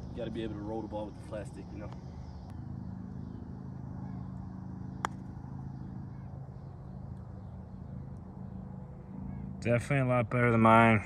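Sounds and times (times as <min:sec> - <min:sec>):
low engine hum: 0:00.0 - 0:11.0
putter striking golf ball: 0:04.9 - 0:05.3.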